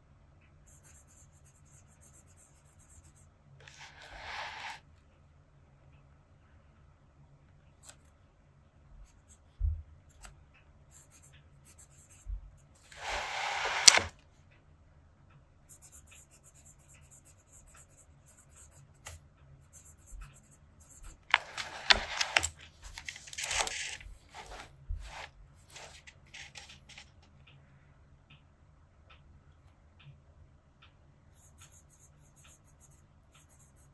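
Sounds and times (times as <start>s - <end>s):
fountain pen scratching on paper: 0.7s - 4.8s, 12.9s - 14.1s, 15.7s - 27.1s.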